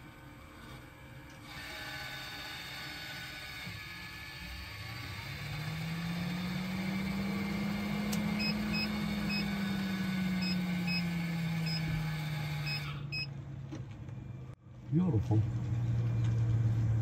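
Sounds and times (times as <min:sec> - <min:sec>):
fan motor humming: 0:00.0 - 0:13.3.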